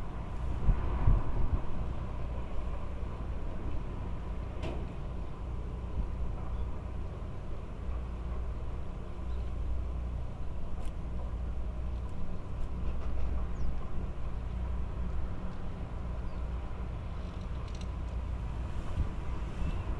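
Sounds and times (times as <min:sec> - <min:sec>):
low rumble of background noise: 0:00.0 - 0:19.9.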